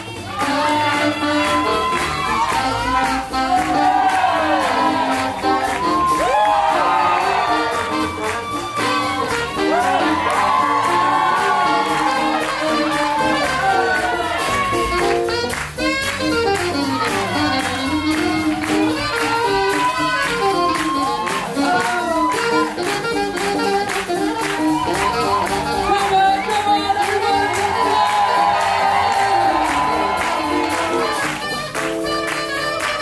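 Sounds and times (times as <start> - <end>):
live swing jazz band: 0.0 - 33.0.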